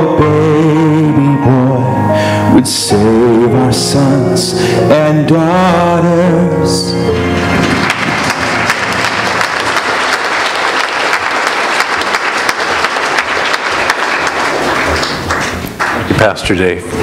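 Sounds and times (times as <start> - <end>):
band holding a chord: 0.1 - 10.0
congregation applauding: 7.1 - 16.6.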